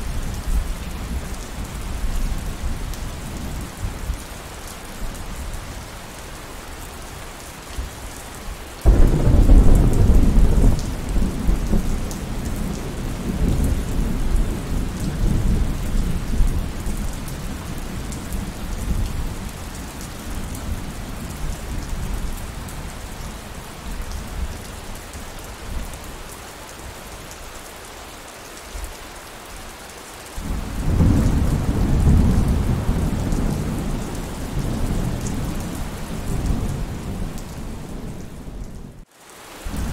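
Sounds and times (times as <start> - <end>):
steady rain falling: 0.0 - 39.9
thunder rumbling: 8.8 - 19.5, 30.4 - 39.0.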